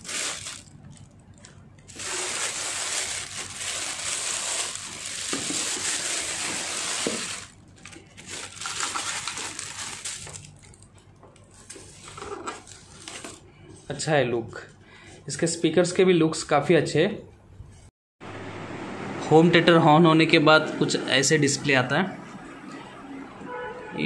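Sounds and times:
plastic bag crinkling: 0.0 - 13.4.

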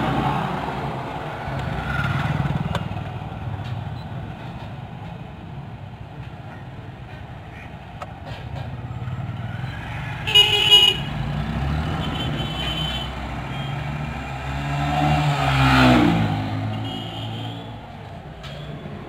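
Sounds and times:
passing vehicle engine rumble: 0.0 - 19.0
car horn toot: 10.3 - 11.1, 16.7 - 17.8.

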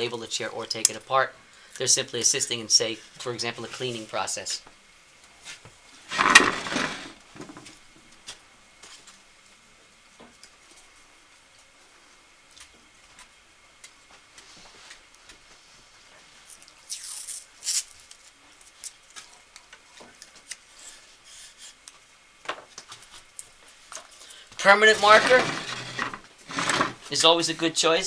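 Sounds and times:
masking tape ripping: 16.8 - 18.3.

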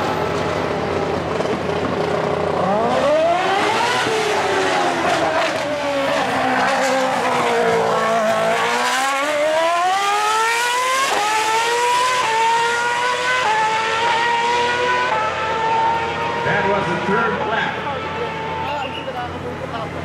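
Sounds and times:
racing car engine revving: 0.3 - 20.0.

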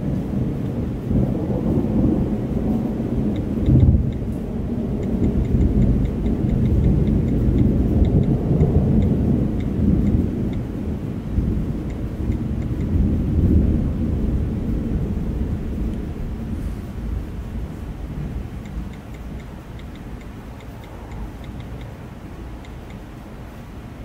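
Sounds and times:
thunder rumbling: 0.0 - 22.6
faint quick ticking: 18.6 - 22.0.

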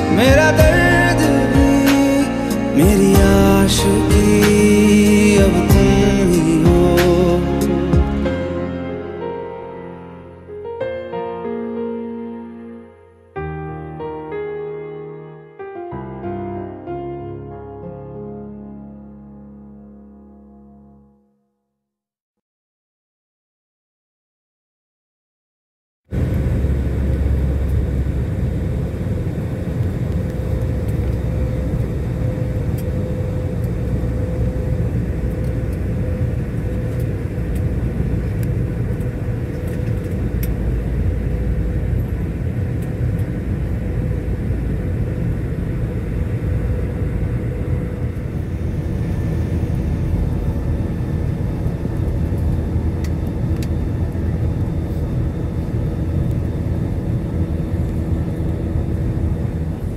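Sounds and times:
constant cabin hum: 0.0 - 9.4, 26.1 - 59.9
jet engine and airflow rumble: 0.0 - 18.6, 26.1 - 59.9.

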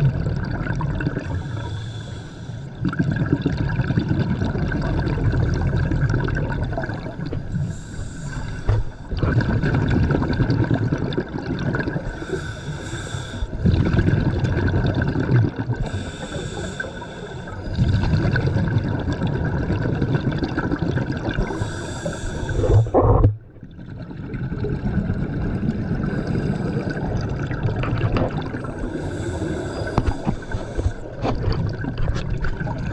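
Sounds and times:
exhaled bubbles rumbling: 0.0 - 12.5, 13.5 - 32.9
regulator hiss on inhale: 1.2 - 2.8, 7.6 - 9.1, 12.1 - 13.6, 15.8 - 17.7, 21.5 - 23.0, 28.7 - 31.2.

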